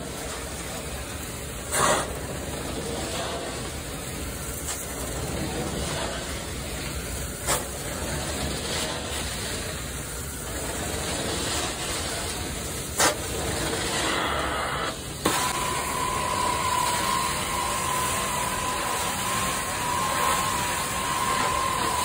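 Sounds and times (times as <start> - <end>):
carpet cleaning wand suction hiss: 14.0 - 22.0.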